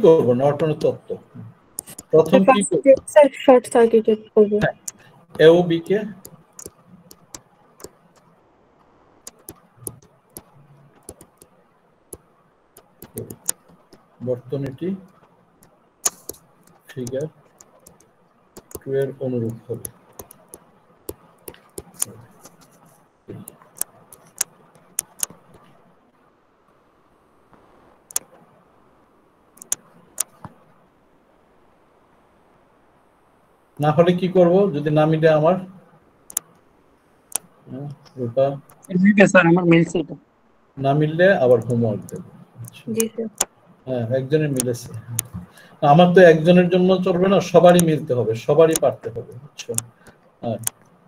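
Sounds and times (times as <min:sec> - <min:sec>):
faint steady hiss: 0:00.0 - 0:51.0
pen clicking on touchscreen: 0:01.8 - 0:03.1, 0:06.2 - 0:08.0, 0:09.2 - 0:11.5, 0:12.8 - 0:14.0, 0:16.0 - 0:18.0, 0:18.6 - 0:22.8, 0:23.4 - 0:25.6, 0:29.6 - 0:30.5, 0:41.6 - 0:42.8
stylus tapping on tablet screen: 0:09.3 - 0:11.5, 0:12.8 - 0:14.0, 0:16.0 - 0:22.8.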